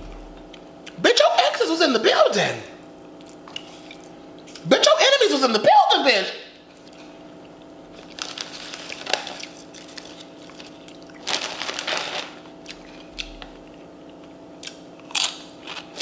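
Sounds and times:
chip bag rustling: 0:07.9 - 0:13.5
chip crunch: 0:07.9 - 0:13.6, 0:14.6 - 0:16.0.

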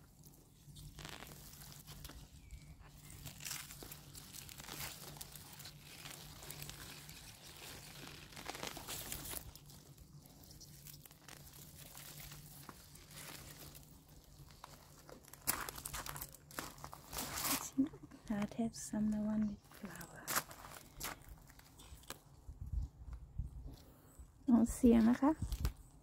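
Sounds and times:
roots tearing out of soil: 0:00.0 - 0:18.5, 0:19.6 - 0:22.8, 0:25.0 - 0:26.0
sharp crackle: 0:00.0 - 0:18.6, 0:24.9 - 0:26.0
rustling of plant stems: 0:00.0 - 0:23.7.

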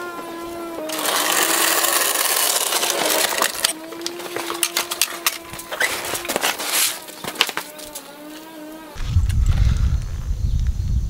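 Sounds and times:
dolly casters rolling on concrete: 0:00.0 - 0:08.5.

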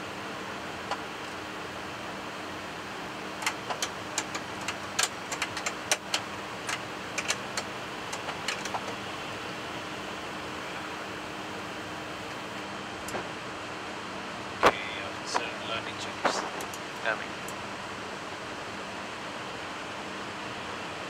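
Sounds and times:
sharp irregular clicks: 0:03.4 - 0:09.0
aircraft flight deck hiss: 0:14.6 - 0:17.3.

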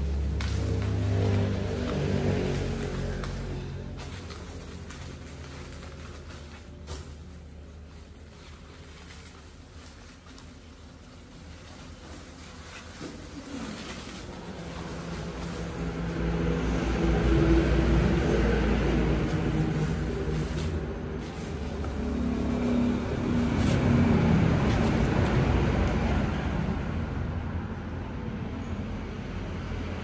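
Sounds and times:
vehicle engine running: 0:00.0 - 0:07.1, 0:13.4 - 0:27.5
bubble wrap crinkling: 0:00.0 - 0:26.7.

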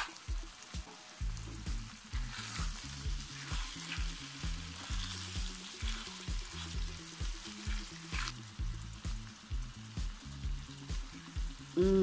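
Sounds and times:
music with bass beat: 0:00.0 - 0:12.0
stew sizzling in a pan: 0:00.0 - 0:12.0
spatula scraping a pan: 0:01.7 - 0:08.4.

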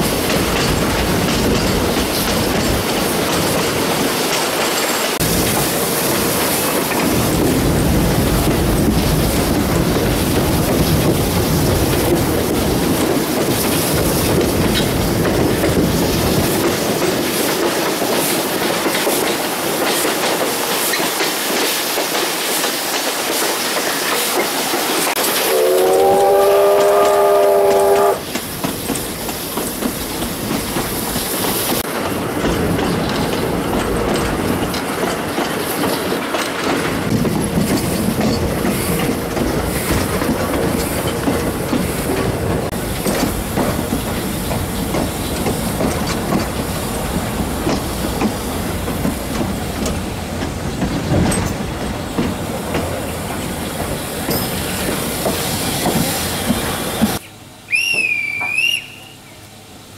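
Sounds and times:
wheels on rail: 0:00.0 - 0:59.9
steam locomotive whistle: 0:25.2 - 0:28.3, 0:56.9 - 0:59.4.

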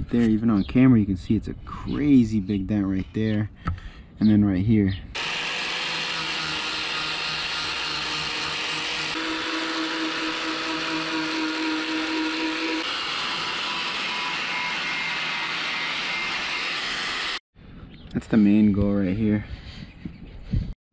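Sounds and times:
angle grinder grinding metal: 0:05.2 - 0:17.4.

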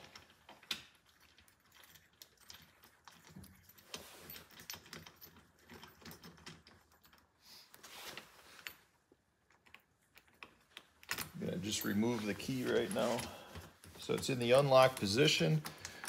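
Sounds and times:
small metallic clicks and rattles: 0:00.0 - 0:07.4, 0:12.6 - 0:16.0
key jingling: 0:11.1 - 0:16.0.

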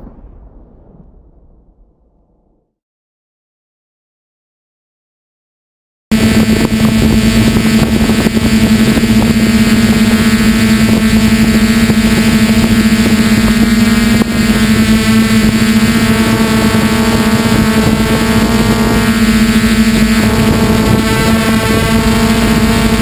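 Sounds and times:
quadcopter propellers humming: 0:06.1 - 0:23.0.

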